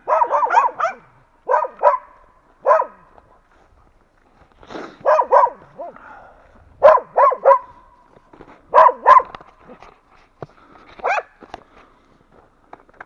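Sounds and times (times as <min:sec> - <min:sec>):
dog barking: 0:00.0 - 0:03.4, 0:05.0 - 0:06.0, 0:06.8 - 0:08.0, 0:08.7 - 0:09.4, 0:11.0 - 0:11.4.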